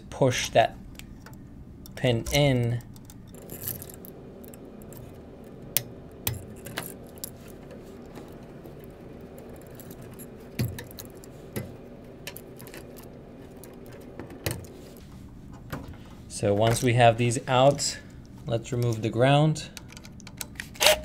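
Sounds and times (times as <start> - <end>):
faint steady hum: 0.0 - 21.0
screwdriver clicking on metal: 0.9 - 14.8.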